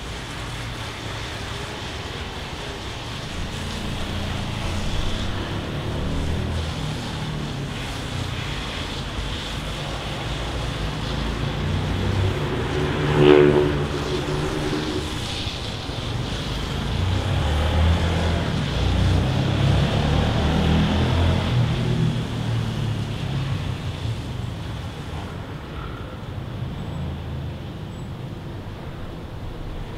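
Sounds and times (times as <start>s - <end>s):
traffic rumble: 0.0s - 29.9s
vehicle engine passing: 1.6s - 24.0s.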